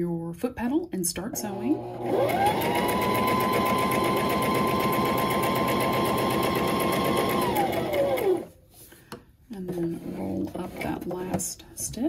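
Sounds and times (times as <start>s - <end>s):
sewing machine motor whine: 1.5s - 8.5s.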